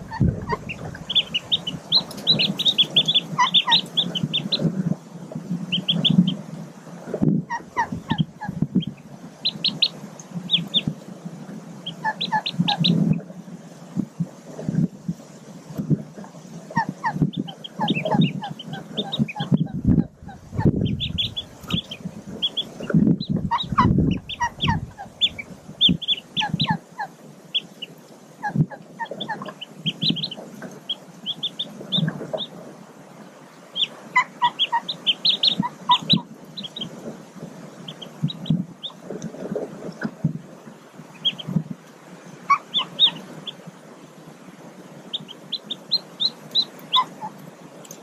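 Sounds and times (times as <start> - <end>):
ducklings peeping: 0.0 - 6.5, 7.1 - 13.3, 15.7 - 40.4, 41.0 - 43.6, 45.0 - 48.0
muffled rustles and thumps: 31.8 - 32.7.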